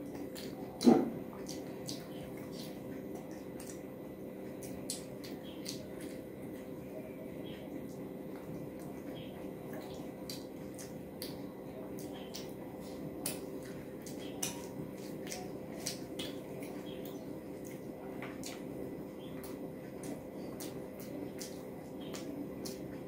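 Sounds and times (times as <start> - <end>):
steady low hum: 0.0 - 23.0
wet mouth chewing clicks: 0.2 - 3.8, 4.6 - 6.2, 9.8 - 11.4, 19.4 - 22.9.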